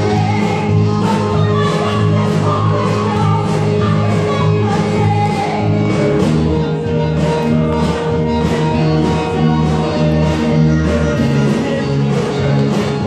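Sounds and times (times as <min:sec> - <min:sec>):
band playing upbeat worship song: 0:00.0 - 0:13.0.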